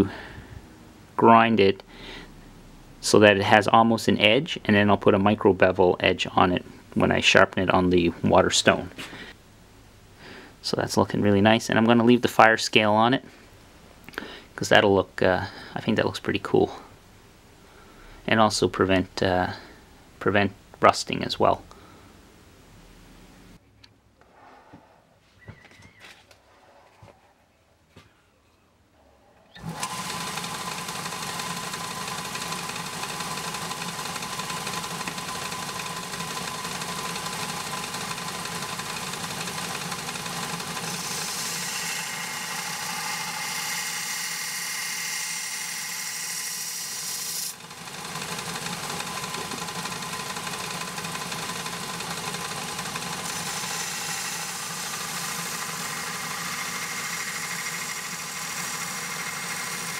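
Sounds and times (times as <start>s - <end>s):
belt grinder running: 29.6s - 59.9s.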